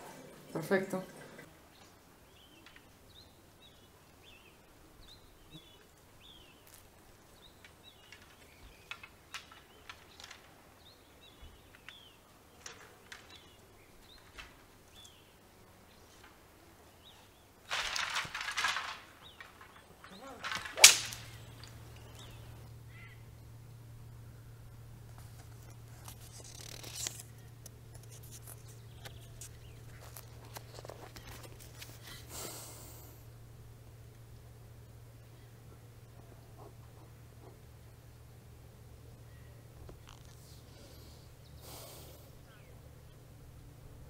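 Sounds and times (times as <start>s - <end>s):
small birds chirping: 0.2s - 32.5s, 34.2s - 44.0s
sharp crack: 7.6s - 10.8s, 17.6s - 22.8s.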